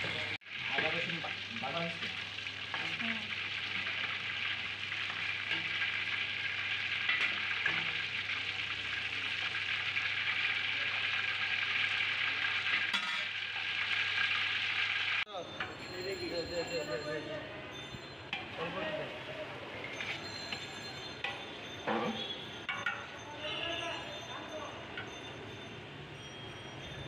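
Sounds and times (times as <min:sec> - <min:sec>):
metal ladle stirring oil: 0:00.0 - 0:14.3, 0:19.8 - 0:23.2
oil sizzling while deep-frying: 0:00.0 - 0:16.4, 0:17.9 - 0:23.3.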